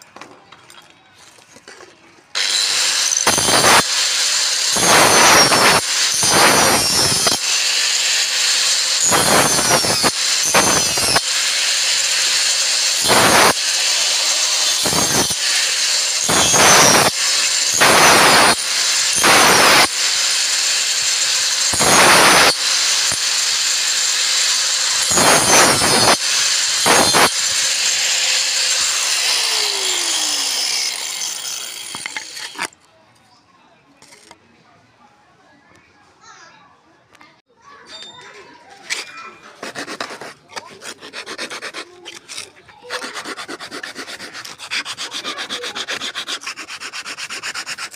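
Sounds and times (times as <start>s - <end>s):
angle grinder spinning down: 2.4s - 32.7s
angle grinder cutting wood: 2.4s - 32.8s, 38.8s - 47.9s.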